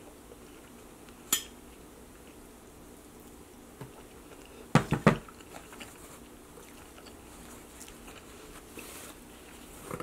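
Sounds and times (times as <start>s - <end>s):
chewing chicken wing: 5.2s - 8.8s
paper napkin rustle: 7.3s - 10.0s.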